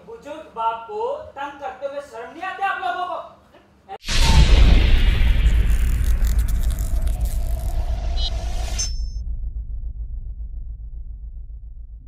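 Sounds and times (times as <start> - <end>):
deep steady rumble: 4.1 - 12.0
held tone: 7.6 - 9.2.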